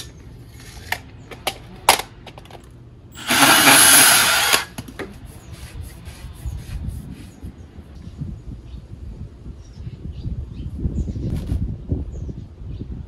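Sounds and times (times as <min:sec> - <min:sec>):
power saw cutting plastic pipe: 0:03.2 - 0:04.8.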